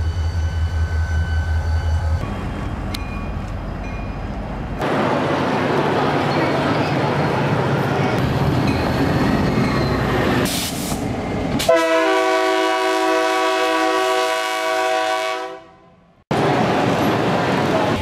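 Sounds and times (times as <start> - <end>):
diesel train rumbling past: 0.0 - 18.0
locomotive air horn blast: 11.6 - 15.9.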